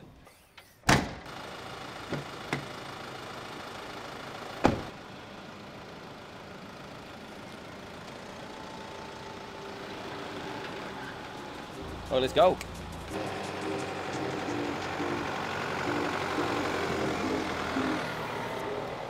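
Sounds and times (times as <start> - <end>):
car door shutting: 0.6 - 1.3, 4.6 - 4.9
car engine running: 1.3 - 19.0.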